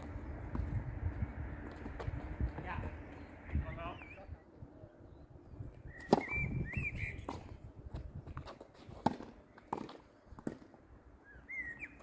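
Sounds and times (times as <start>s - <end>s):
tennis balls bouncing on hard court: 6.0s - 6.4s, 7.2s - 10.8s
tennis balls struck by rackets: 6.0s - 6.5s, 8.4s - 10.9s.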